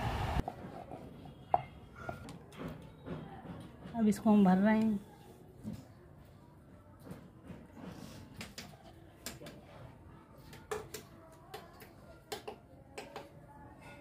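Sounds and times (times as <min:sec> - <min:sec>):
spoon clicks and taps on board: 0:10.5 - 0:13.3.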